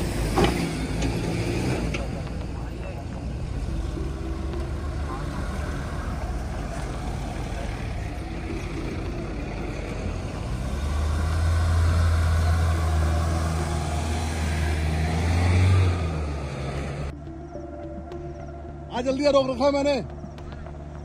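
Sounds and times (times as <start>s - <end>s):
off-road engine droning under load: 0.0s - 21.0s.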